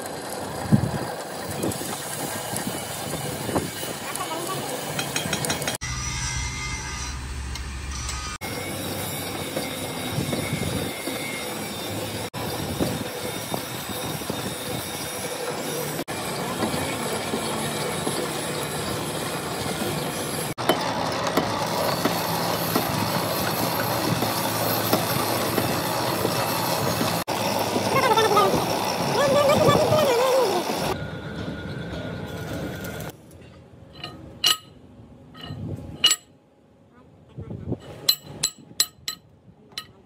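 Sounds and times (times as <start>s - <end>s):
metallic rattle and screech: 2.1s - 33.1s.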